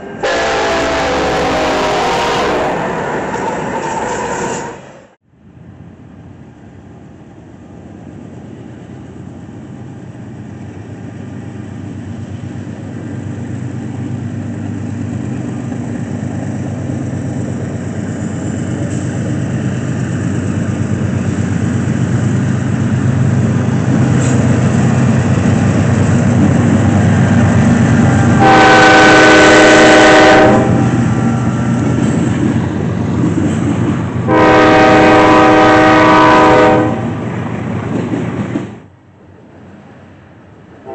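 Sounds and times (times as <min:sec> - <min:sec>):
locomotive air horn blast: 0:00.0 - 0:05.1, 0:28.4 - 0:30.9, 0:34.3 - 0:37.2
diesel locomotive engine rumble: 0:00.0 - 0:40.9.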